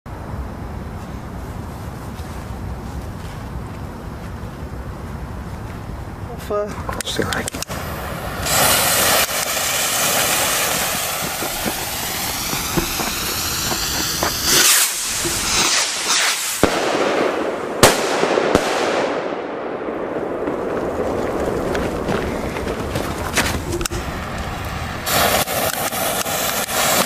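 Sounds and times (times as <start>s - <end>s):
continuous hiss: 0.1s - 27.0s
rockets bursting with sharp bangs: 7.0s - 27.0s
rocket launch whoosh: 7.7s - 19.3s, 20.2s - 27.0s.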